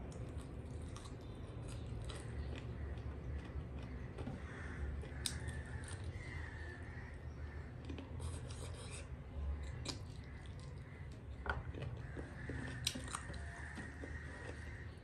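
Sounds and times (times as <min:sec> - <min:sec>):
wet chewing and mouth smacks: 0:09.6 - 0:14.7.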